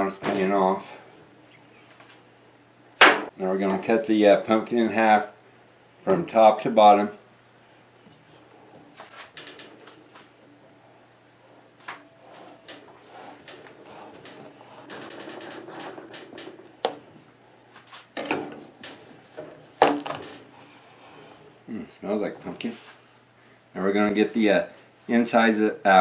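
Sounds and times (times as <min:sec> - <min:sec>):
pumpkin cracking apart: 0:19.6 - 0:20.4.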